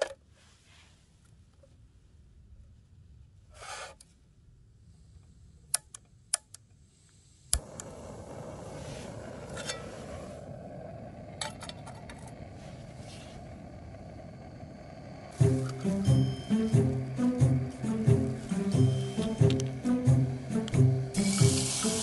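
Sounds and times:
gas burner hissing: 0:06.8 - 0:22.0
igniter click: 0:18.5 - 0:19.9.

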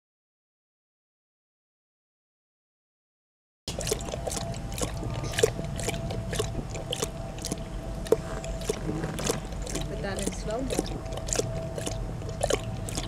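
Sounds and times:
dog lapping water from bowl: 0:03.7 - 0:13.0.

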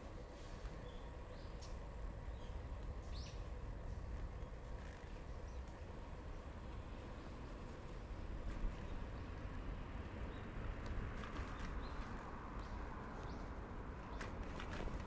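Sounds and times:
bicycle tyres rolling: 0:00.0 - 0:15.0
wind: 0:00.0 - 0:15.0.

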